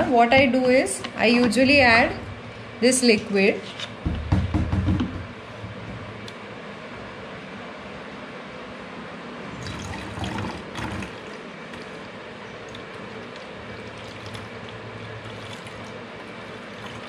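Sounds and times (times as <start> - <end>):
liquid trickling into jug: 9.6 - 17.0.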